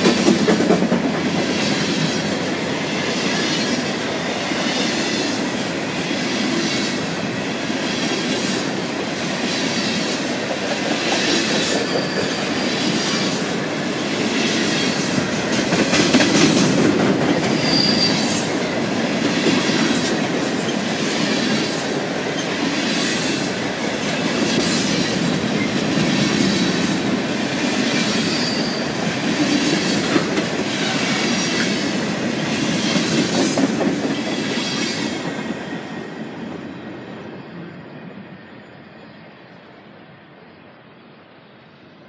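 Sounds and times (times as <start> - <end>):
train wheels rumbling: 0.0 - 38.4
high wheel squeals: 11.8 - 12.9, 17.5 - 18.4, 28.2 - 29.0.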